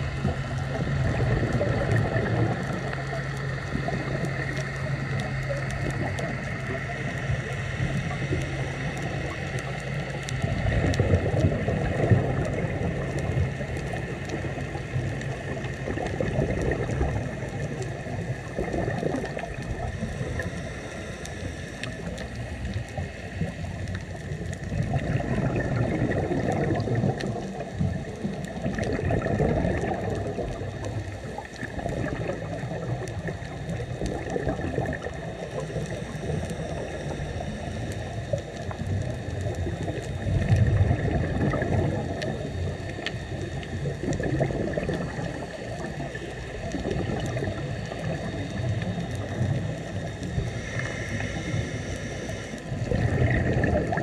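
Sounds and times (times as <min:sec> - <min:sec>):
bubbles gurgling: 0:00.0 - 0:54.0
diver breathing through regulator: 0:49.2 - 0:54.0.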